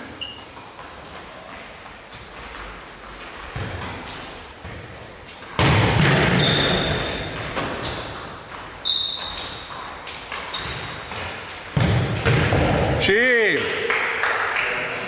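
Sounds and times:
trainers squeaking on wooden floor: 0.0 - 1.5, 6.4 - 11.6
ball thumping in echoing hall: 0.0 - 14.6.

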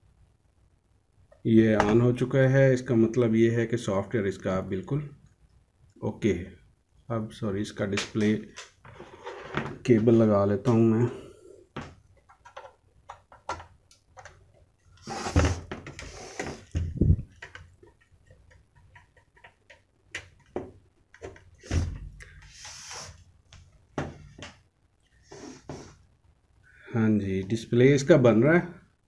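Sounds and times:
electronics handling clicks and knocks: 11.8 - 14.7, 15.5 - 22.5
heavier thumps: 16.6 - 17.4.

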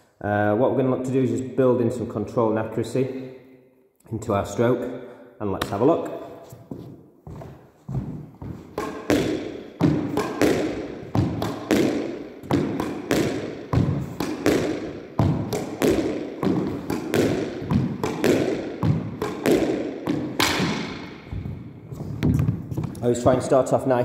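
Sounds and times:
ball bouncing on wooden floor: 6.7 - 23.4
squash racket striking ball: 8.0 - 22.9
ball smacking wall: 8.7 - 21.2.

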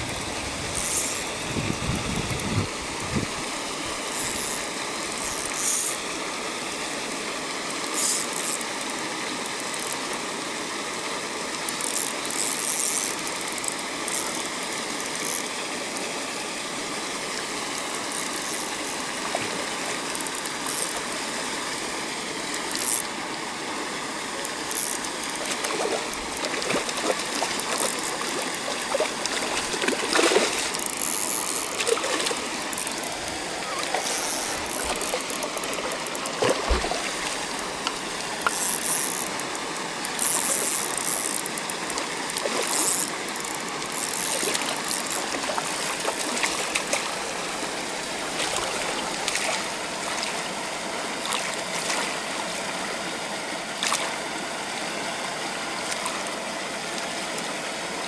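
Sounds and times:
fishing reel winding and ratcheting: 0.7 - 1.3, 4.1 - 4.6, 5.2 - 6.0, 7.9 - 8.9, 11.7 - 14.4, 20.1 - 21.0, 22.7 - 23.1, 24.6 - 25.4, 27.6 - 28.2, 30.7 - 31.8, 32.7 - 33.1, 34.0 - 36.3, 38.4 - 39.4, 40.0 - 45.3
water jet rushing: 17.1 - 52.6
fish splashing at surface: 25.4 - 30.8, 33.9 - 38.0.

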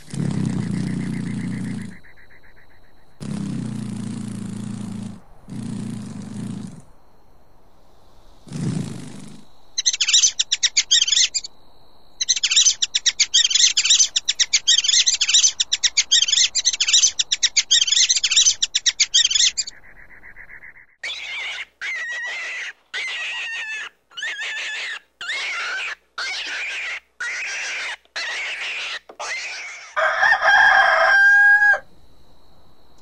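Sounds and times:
high-pitched chirping trills: 9.8 - 11.5, 12.2 - 29.8
rats squeaking: 9.8 - 11.5, 12.2 - 20.4, 21.0 - 30.0.

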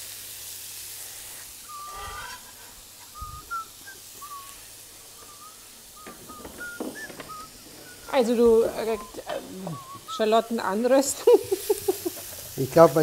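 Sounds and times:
shallots sizzling in butter: 0.0 - 13.0
high whistling chirps: 1.6 - 12.2.

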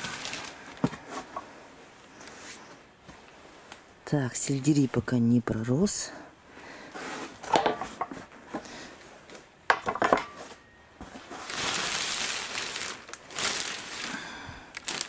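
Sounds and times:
cover rustling: 10.1 - 14.1.

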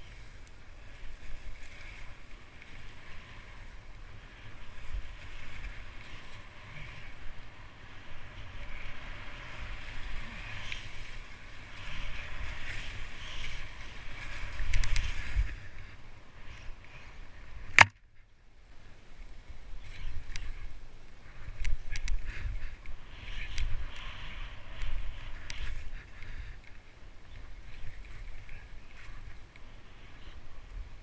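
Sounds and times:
wind rumbling on microphone: 0.0 - 31.0.

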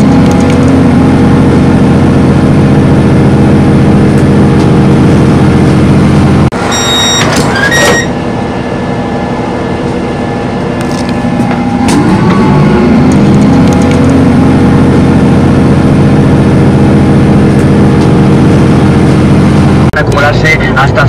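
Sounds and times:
train engine humming: 0.0 - 21.0
short high-pitched tones: 6.6 - 8.2.

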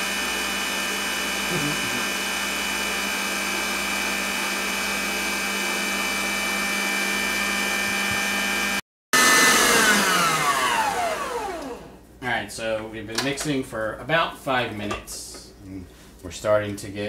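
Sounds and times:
electric stand mixer whining: 0.0 - 12.0.

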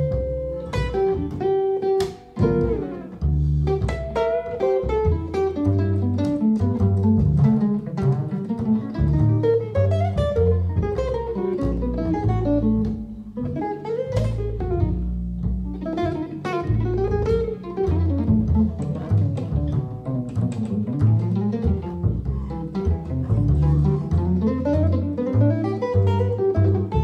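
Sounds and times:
plucked double bass: 0.0 - 27.0.

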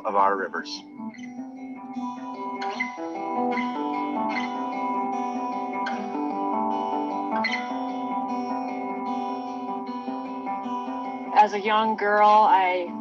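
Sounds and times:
plucked guitar music: 0.0 - 13.0.

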